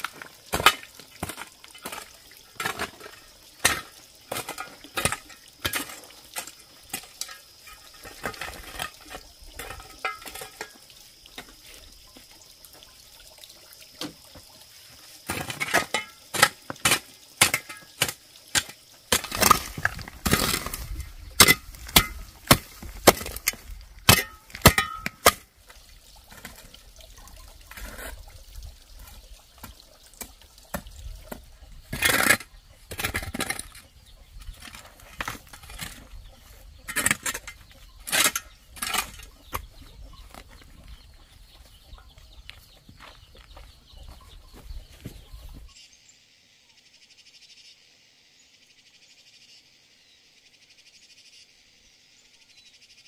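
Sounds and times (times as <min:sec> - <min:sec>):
hoe chopping stony soil: 0:00.0 - 0:10.8, 0:15.2 - 0:25.5, 0:29.6 - 0:40.2.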